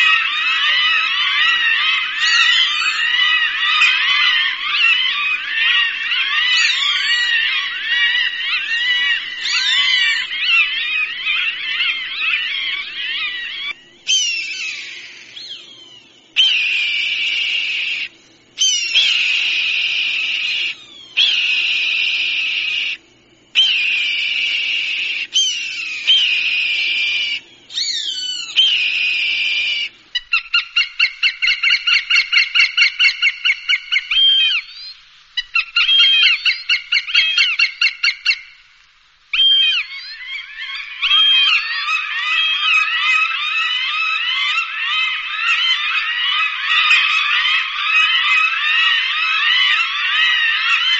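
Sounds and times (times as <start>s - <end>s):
hawk screams: 0.0s - 15.8s, 39.4s - 50.9s.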